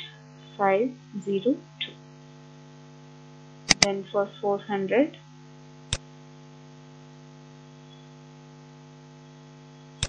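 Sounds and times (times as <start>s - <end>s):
electrical mains hum: 0.0s - 10.0s
sharp click: 3.7s - 3.9s.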